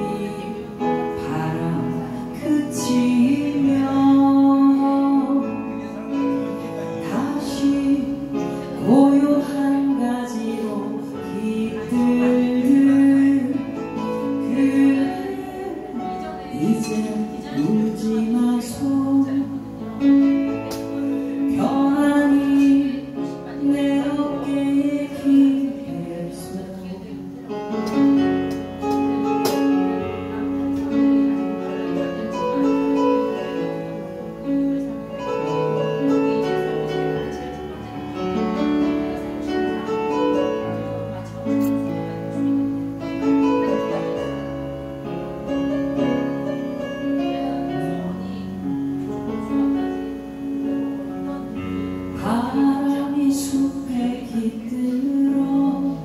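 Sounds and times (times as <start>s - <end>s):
woman singing into a microphone: 0.0s - 33.9s, 47.2s - 56.0s
electric keyboard chords: 0.0s - 56.0s.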